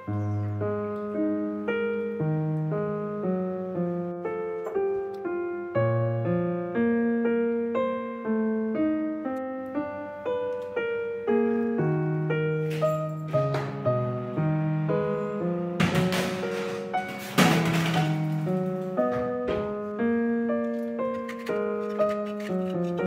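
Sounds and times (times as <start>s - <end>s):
gentle piano music: 0.0s - 23.0s.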